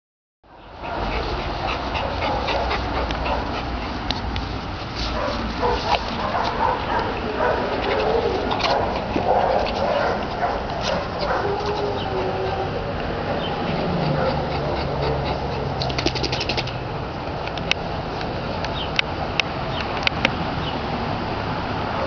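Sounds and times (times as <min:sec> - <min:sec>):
dog panting: 0:00.7 - 0:16.8
rustling on grass: 0:01.2 - 0:12.2.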